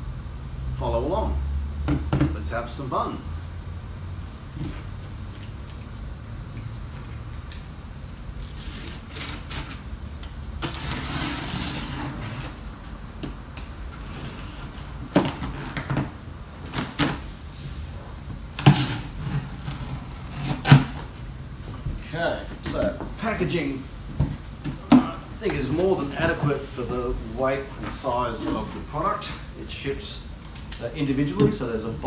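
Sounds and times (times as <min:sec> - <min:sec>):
knife cutting packing tape: 0:08.4 - 0:09.9, 0:10.6 - 0:12.7, 0:14.1 - 0:17.3, 0:18.5 - 0:21.1
cardboard thumps and rustles: 0:24.0 - 0:26.6.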